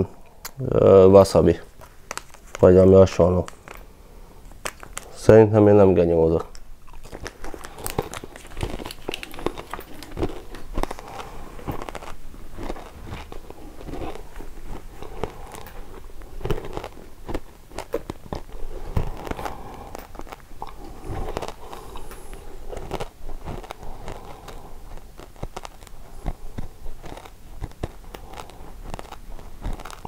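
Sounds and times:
man crunching potato chip: 0:06.4 - 0:30.0.

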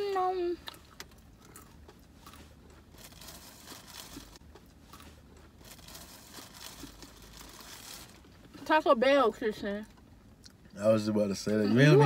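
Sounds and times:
people chewing: 0:00.6 - 0:08.4
food wrappers crinkling: 0:01.0 - 0:08.4.

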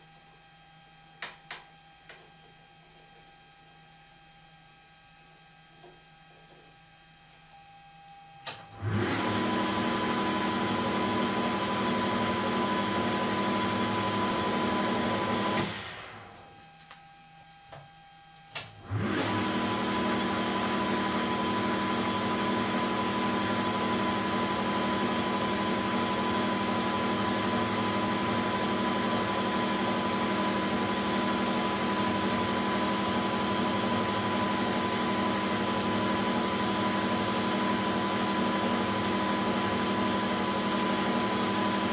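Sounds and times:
lathe motor whine: 0:08.3 - 0:16.6, 0:18.8 - 0:41.9.

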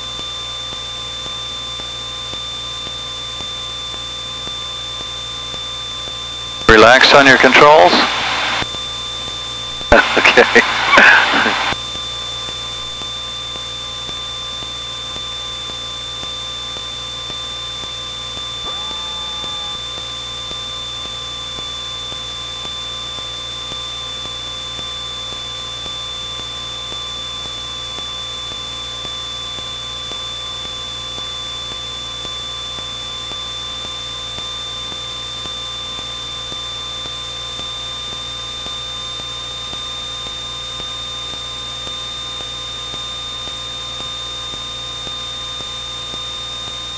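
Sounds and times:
high steady whine: 0:06.2 - 0:30.4
airplane cabin hum and hiss: 0:06.7 - 0:08.7, 0:09.6 - 0:11.8.

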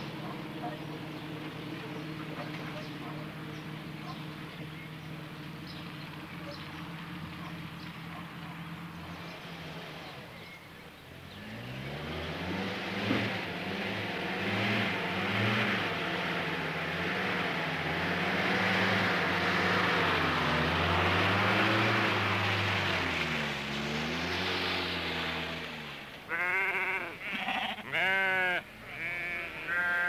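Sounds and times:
car engine running: 0:00.0 - 0:26.9
sheep bleating loudly: 0:26.3 - 0:30.0.

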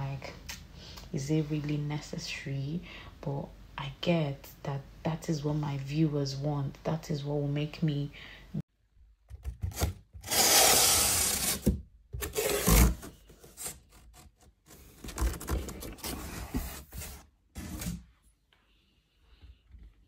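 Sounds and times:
rubbing and scraping noises: 0:09.7 - 0:18.2.

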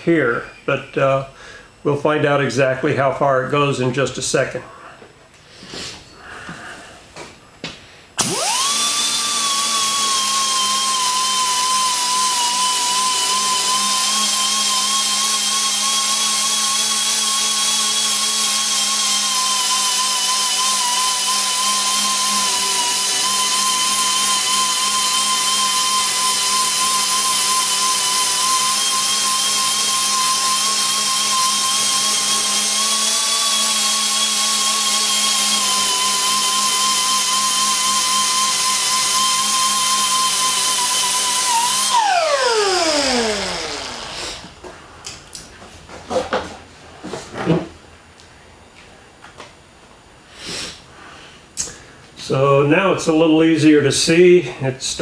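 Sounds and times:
air die grinder whine: 0:08.2 - 0:44.7
air hissing: 0:50.3 - 0:50.9.

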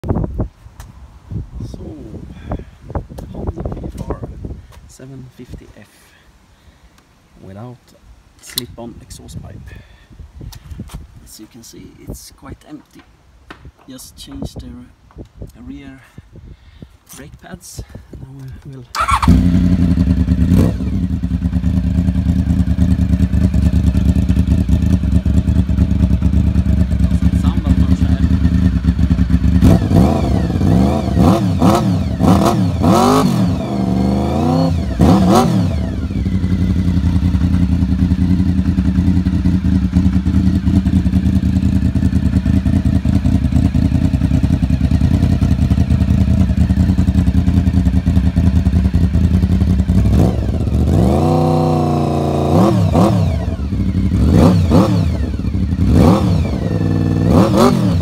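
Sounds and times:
motorcycle engine idling and revving: 0:18.4 - 0:58.0.

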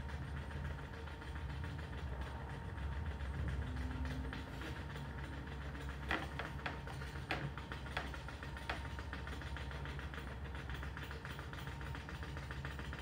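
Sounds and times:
vibration machine motor hum: 0:00.0 - 0:13.0.

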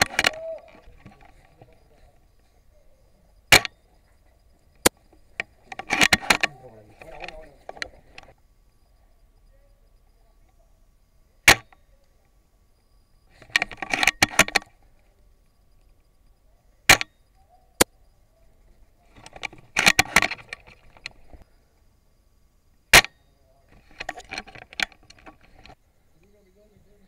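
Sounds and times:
rifle bolt clicking: 0:00.0 - 0:01.2, 0:03.5 - 0:03.8, 0:05.7 - 0:08.3, 0:11.5 - 0:11.8, 0:16.9 - 0:17.2, 0:23.0 - 0:23.2
airsoft rifle shots: 0:03.5 - 0:03.8, 0:11.5 - 0:11.8, 0:22.9 - 0:23.3.

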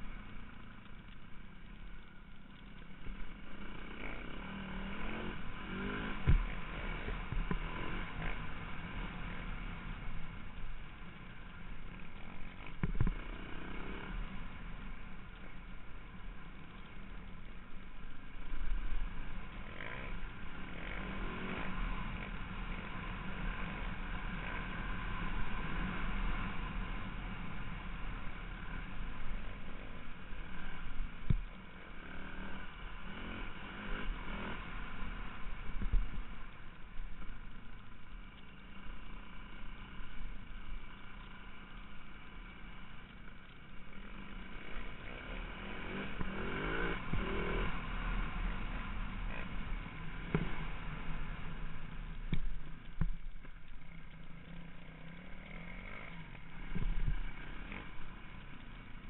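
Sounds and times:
motorcycle engine revving: 0:00.0 - 0:59.0
wind rumble on microphone: 0:56.7 - 0:57.4.

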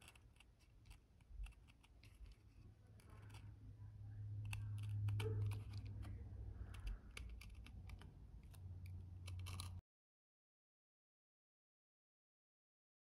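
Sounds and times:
knife blade trimming leather: 0:00.0 - 0:03.5, 0:04.4 - 0:09.8
steady low hum: 0:00.0 - 0:09.8.

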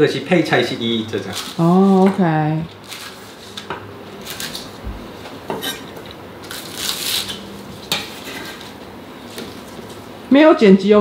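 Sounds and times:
utensils and dishes clinking: 0:05.5 - 0:06.1.

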